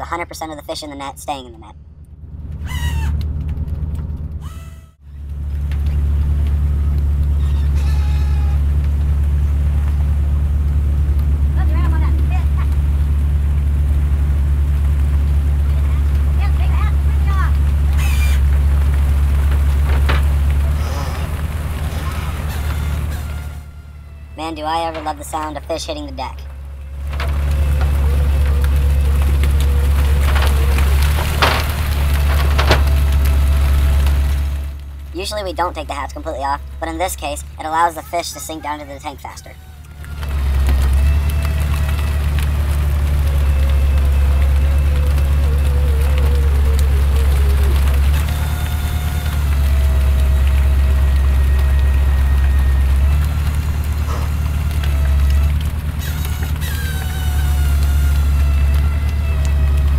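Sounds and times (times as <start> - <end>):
low drone of boat engine: 0.0 - 59.9
heavy thumps: 8.8 - 37.4.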